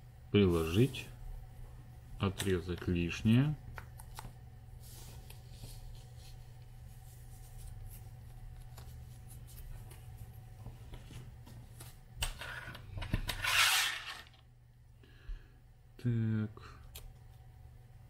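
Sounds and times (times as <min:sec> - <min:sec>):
steady low hum: 0:00.0 - 0:18.0
velcro rustling and rasping: 0:13.4 - 0:14.3.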